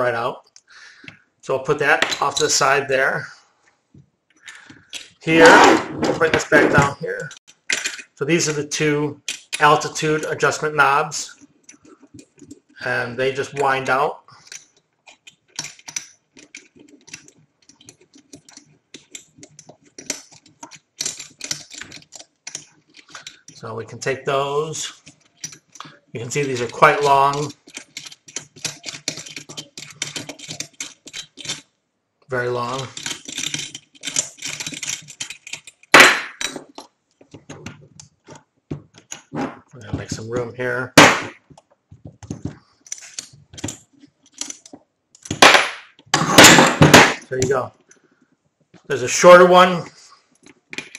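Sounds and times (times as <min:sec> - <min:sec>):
metal parts clicking and rattling: 0:01.7 - 0:02.8, 0:04.3 - 0:48.1, 0:50.3 - 0:50.9
screws clicking as they turn: 0:24.9 - 0:31.7, 0:32.6 - 0:35.9.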